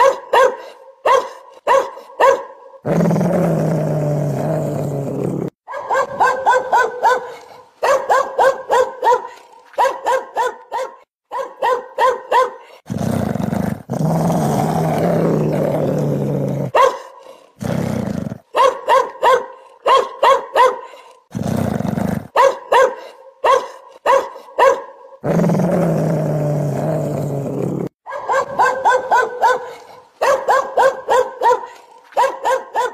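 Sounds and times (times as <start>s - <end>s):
dog barking: 0.0s - 2.9s, 5.6s - 12.8s, 16.7s - 17.4s, 18.5s - 21.2s, 22.3s - 25.2s, 28.0s - 32.9s
dog growling: 2.9s - 5.6s, 12.7s - 18.5s, 21.1s - 22.4s, 25.2s - 28.0s.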